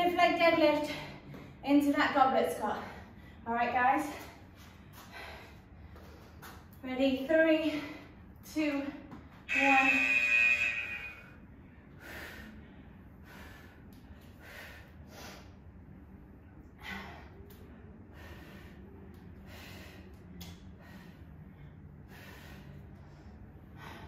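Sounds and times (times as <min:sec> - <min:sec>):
woman breathing hard: 0:04.2 - 0:06.7, 0:11.0 - 0:24.0.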